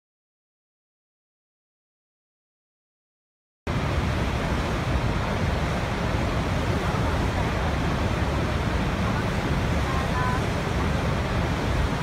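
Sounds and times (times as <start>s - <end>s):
waterfall roaring: 3.7s - 12.0s.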